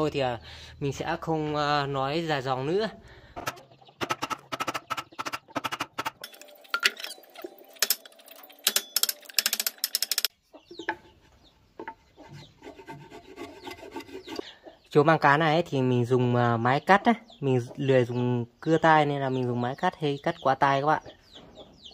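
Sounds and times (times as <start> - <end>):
faint clucking calls: 2.9 - 6.2, 10.3 - 14.9.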